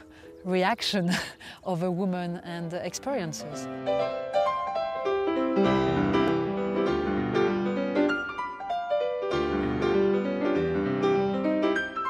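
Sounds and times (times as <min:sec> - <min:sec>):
solo piano music: 0:02.9 - 0:12.0.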